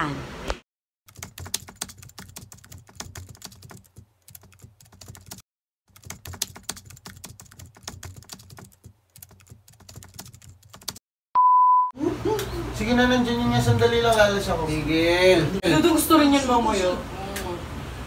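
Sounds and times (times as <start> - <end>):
keyboard typing clicks: 1.1 - 11.0
high single-pitched beep: 11.4 - 11.9.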